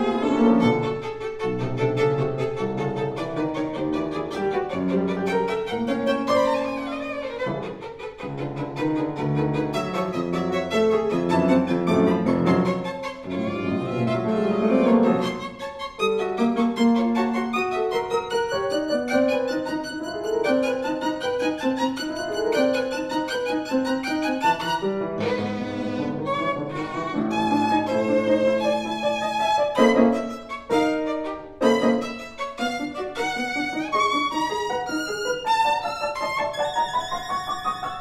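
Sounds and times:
piano playing: 0.0s - 38.0s
violin playing quick lines: 24.2s - 37.6s.

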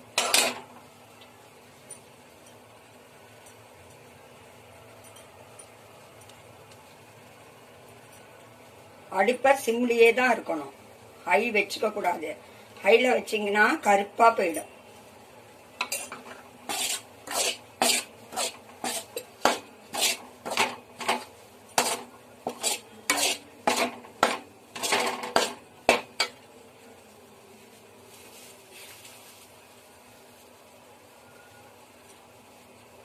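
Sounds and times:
metal spoon scraping a pan: 0.2s - 0.6s, 15.8s - 26.4s.

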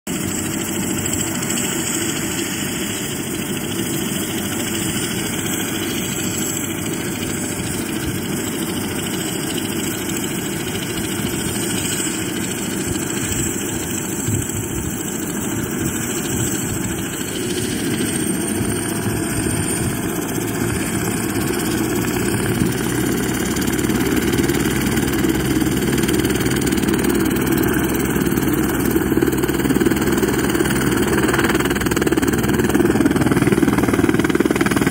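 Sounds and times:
helicopter engine and rotor rumble: 0.1s - 34.9s
high turbine whine: 0.1s - 34.9s.

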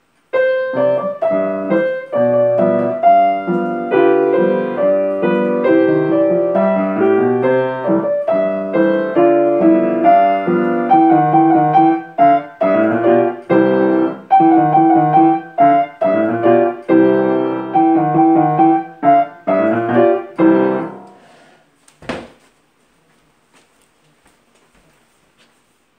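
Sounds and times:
grand piano playing: 0.3s - 21.4s
sharp knock: 22.0s - 22.4s.

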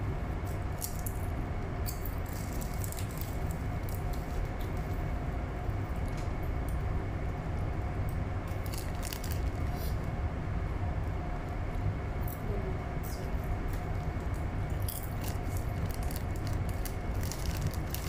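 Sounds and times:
train carriage rumble and hum: 0.0s - 18.0s
crisps being crunched: 1.9s - 4.2s, 8.5s - 9.8s, 14.8s - 18.0s
crisp packet crackling: 8.6s - 9.7s, 15.0s - 18.0s.

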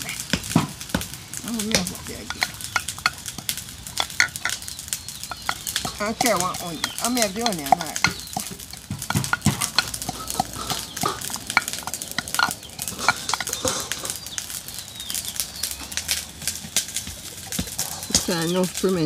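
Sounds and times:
utensils clinking on cookware: 0.0s - 14.3s.

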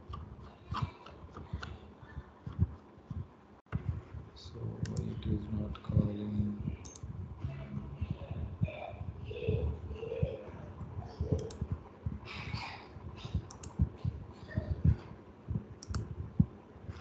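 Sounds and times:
mouse and keyboard clicks: 15.8s - 16.0s.

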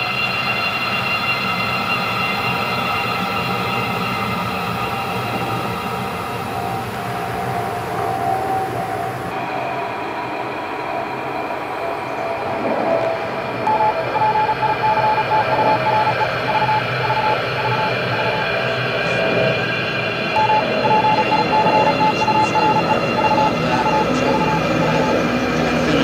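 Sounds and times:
underground train rumbling: 0.0s - 26.0s
rapid electronic beeping: 1.6s - 9.3s, 13.7s - 26.0s.

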